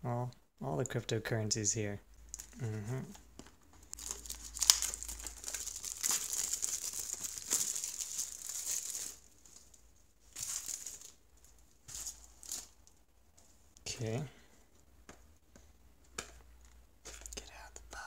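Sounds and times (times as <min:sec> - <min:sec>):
plastic shrink wrap crinkling: 0:03.4 - 0:13.0.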